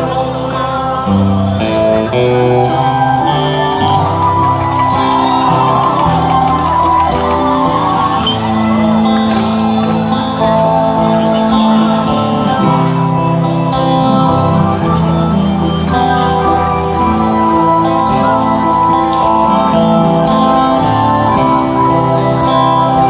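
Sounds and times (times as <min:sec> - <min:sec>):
person singing: 0:00.0 - 0:04.1
live band playing: 0:00.0 - 0:23.0.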